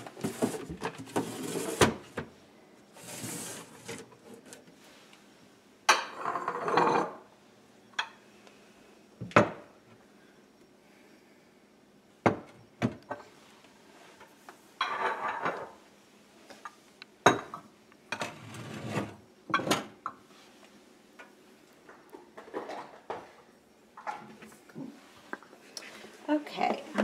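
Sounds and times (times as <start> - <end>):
glass bowls scraping and rattling: 0.2 - 1.8, 3.0 - 4.6, 6.1 - 7.3, 14.8 - 15.7, 18.2 - 19.7
glass bowls clinking: 14.8 - 15.6.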